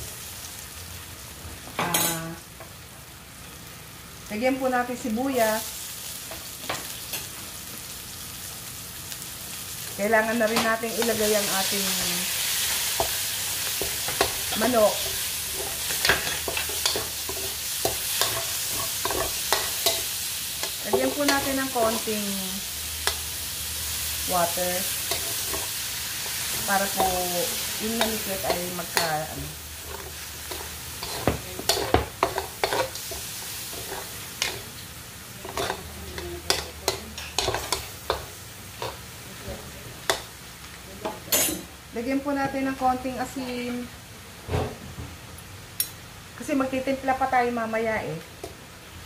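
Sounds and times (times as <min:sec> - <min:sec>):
chicken sizzling in a wok: 0:00.0 - 0:49.0
metal spoon scraping a pan: 0:10.5 - 0:22.1, 0:24.8 - 0:34.8, 0:35.4 - 0:39.0
metal ladle scraping a wok: 0:29.8 - 0:34.7, 0:35.4 - 0:35.8.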